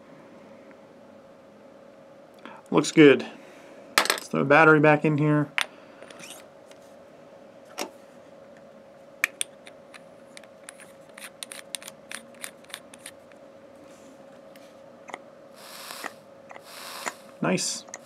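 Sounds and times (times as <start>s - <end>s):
small metallic clicks and scrapes: 9.6s - 13.2s
short hiss of coils firing: 15.6s - 17.3s.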